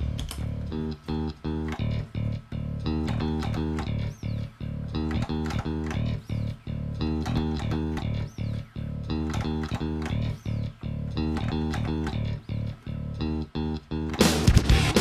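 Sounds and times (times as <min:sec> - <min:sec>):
plucked bass and guitar music: 0:00.0 - 0:15.0.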